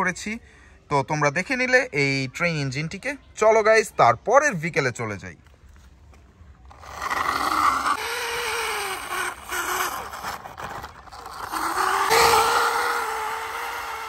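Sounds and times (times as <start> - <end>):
plastic wheels rolling on concrete: 5.7 - 14.0.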